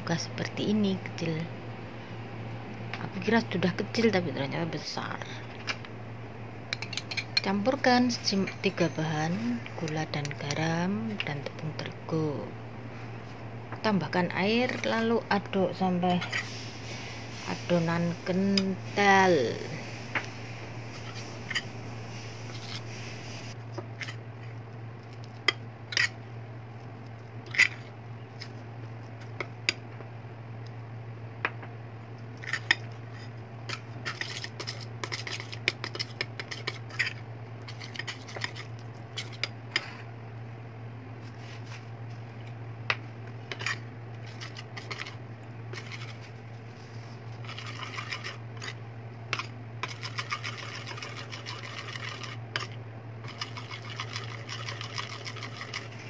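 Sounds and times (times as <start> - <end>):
spoon scraping ceramic bowl: 16.1 - 16.6, 32.4 - 40.0, 43.5 - 46.3, 47.4 - 48.8, 49.4 - 56.0.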